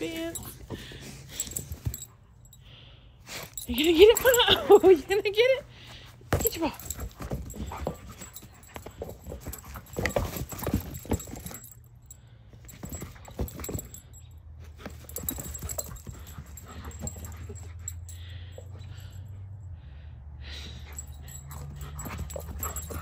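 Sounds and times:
dog panting: 5.4 - 11.7, 14.8 - 19.4, 20.6 - 23.0
ball knocks and scuffs: 6.3 - 11.5.

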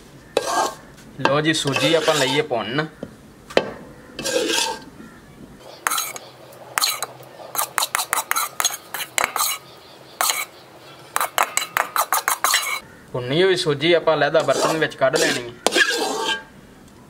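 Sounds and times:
metal spoon scraping a metal pan: 0.3 - 2.5, 4.2 - 4.9, 5.6 - 12.8, 14.3 - 16.5.

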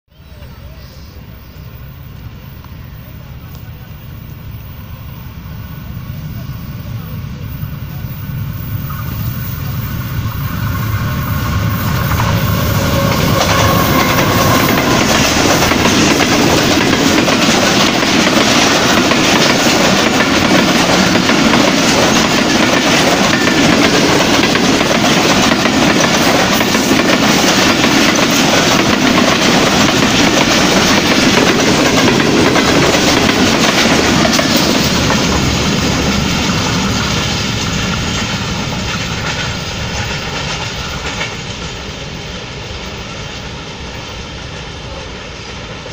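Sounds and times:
diesel locomotive engine passing: 0.2 - 45.9
train wheel clatter over rail joints: 11.5 - 42.0.

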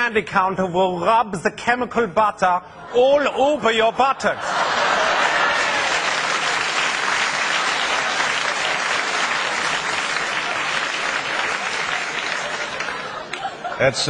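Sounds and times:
audience applauding: 4.5 - 13.7.

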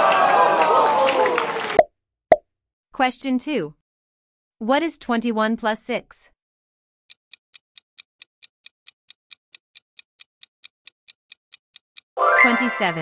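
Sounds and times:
clock ticking: 7.1 - 12.2.

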